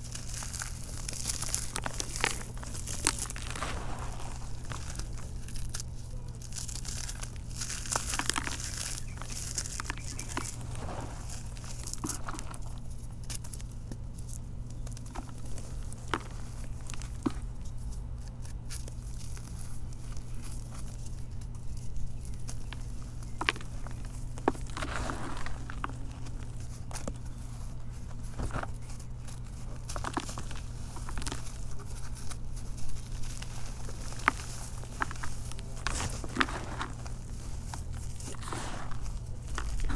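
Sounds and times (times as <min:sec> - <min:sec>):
pieces snapping: 0:00.0 - 0:10.6
hands crumbling gritty blocks: 0:00.0 - 0:14.0, 0:28.1 - 0:39.9
loose grains pattering: 0:00.0 - 0:39.9
steady low hum: 0:00.0 - 0:39.9.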